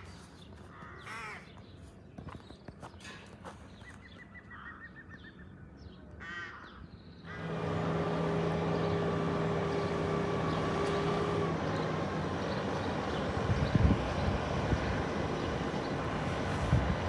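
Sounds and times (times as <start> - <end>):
crow cawing: 0.7 - 1.5, 4.5 - 4.9, 6.2 - 7.6
loud steady rumble with hum: 7.1 - 17.0.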